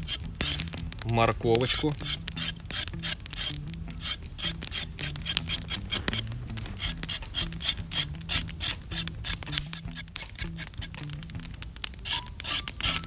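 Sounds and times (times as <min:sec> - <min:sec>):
knife scraping carrot: 0:00.0 - 0:00.7, 0:01.7 - 0:11.0, 0:12.0 - 0:13.0.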